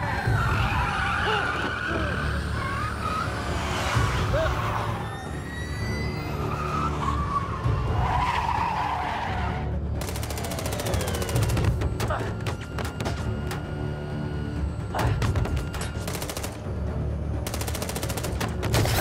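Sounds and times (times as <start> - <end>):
tyres squealing and skidding: 0.0 - 10.0
low pulsing film score: 0.0 - 19.0.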